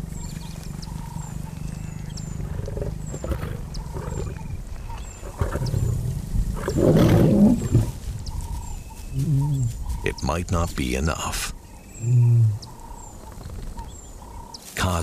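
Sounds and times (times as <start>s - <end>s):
lions growling: 0.0s - 8.1s, 9.1s - 10.2s, 11.9s - 14.5s.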